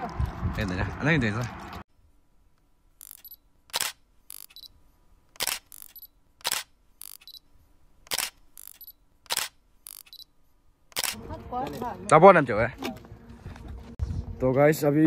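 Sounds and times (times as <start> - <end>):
camera shutter clicks: 3.0 - 4.7, 5.4 - 7.4, 8.1 - 10.2, 10.9 - 11.2.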